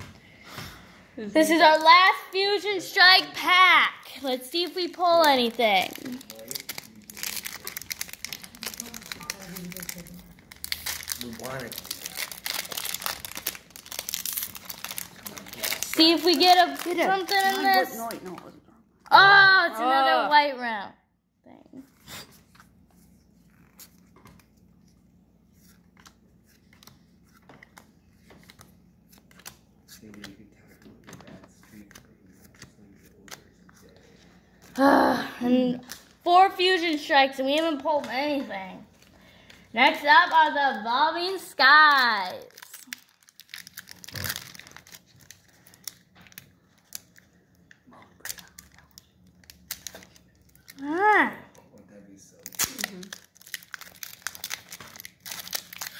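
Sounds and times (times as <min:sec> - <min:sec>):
cards flicking and rustling: 0:04.1 - 0:18.5, 0:22.3 - 0:34.8
foil wrapper crinkling and tearing: 0:04.6 - 0:18.5, 0:35.5 - 0:36.2, 0:41.9 - 0:55.9.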